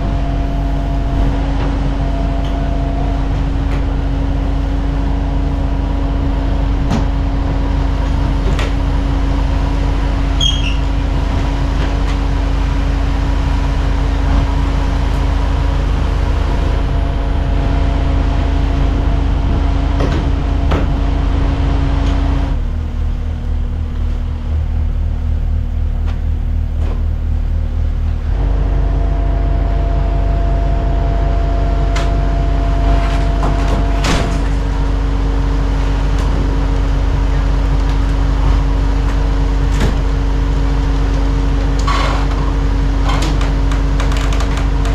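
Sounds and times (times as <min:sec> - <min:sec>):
diesel engines running: 0:00.0 - 0:44.9
sharp knocks and creaks: 0:18.8 - 0:22.4, 0:32.8 - 0:34.9, 0:41.1 - 0:44.9.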